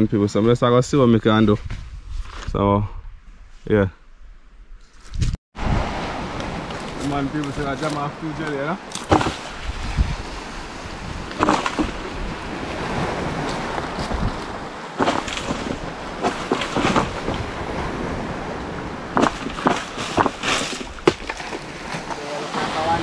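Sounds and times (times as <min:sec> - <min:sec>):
wind on microphone: 0:00.0 - 0:23.0
surf washing in: 0:05.6 - 0:23.0
pole knocking palm fronds: 0:08.9 - 0:09.8, 0:11.3 - 0:12.2, 0:13.4 - 0:17.6, 0:19.2 - 0:22.7.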